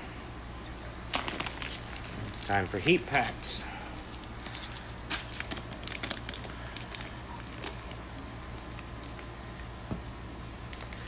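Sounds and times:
steady low hum: 0:00.0 - 0:11.0
plastic bags crinkling: 0:01.1 - 0:09.3, 0:10.7 - 0:11.0.

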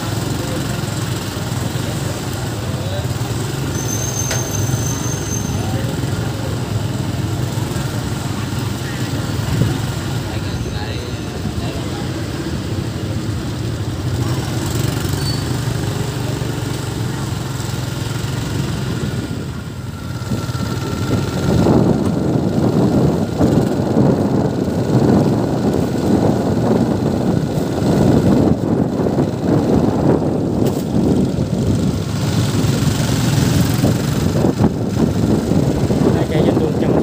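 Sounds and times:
motorbike engine running: 0:00.0 - 0:37.0
road noise: 0:00.0 - 0:37.0
wind on microphone: 0:19.0 - 0:37.0.

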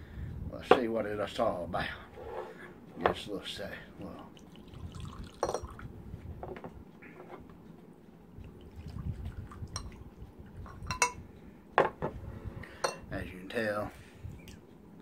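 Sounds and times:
liquid pouring into glass: 0:04.3 - 0:05.8, 0:08.6 - 0:10.0
bottle and glasses clinking: 0:05.4 - 0:05.8, 0:10.7 - 0:11.2, 0:12.8 - 0:13.1.

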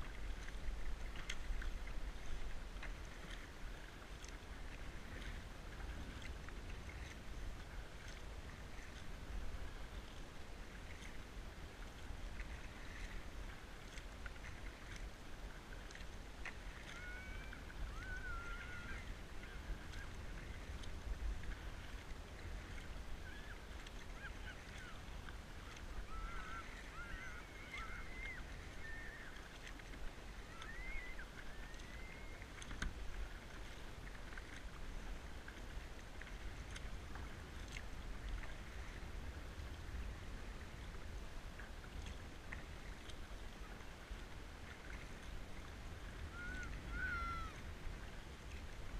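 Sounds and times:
kayak paddle in water: 0:00.0 - 0:48.9
wind on microphone: 0:16.5 - 0:48.9
birds wavering calls: 0:26.0 - 0:29.4, 0:46.3 - 0:47.6.

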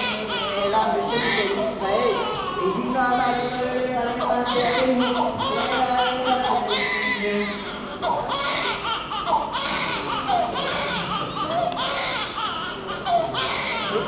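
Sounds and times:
newborn baby crying: 0:00.0 - 0:14.0.

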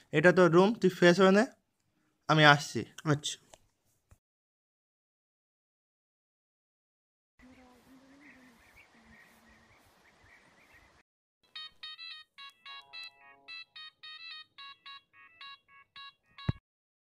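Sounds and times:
mobile phone ringtone: 0:11.5 - 0:16.6.

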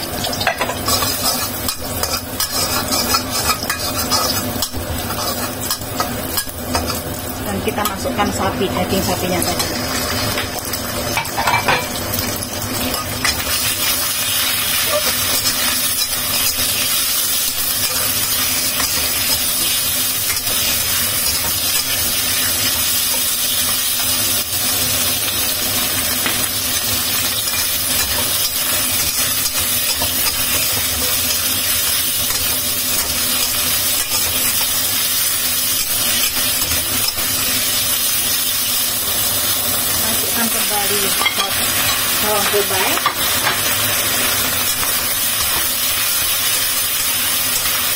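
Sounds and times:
beef sizzling in a wok: 0:00.0 - 0:47.9
metal spatula tossing food: 0:00.5 - 0:07.1.

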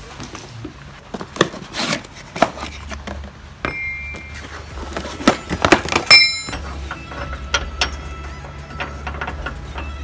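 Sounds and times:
steel brackets knocking: 0:05.8 - 0:10.0
sharp metallic clink: 0:06.1 - 0:06.7.

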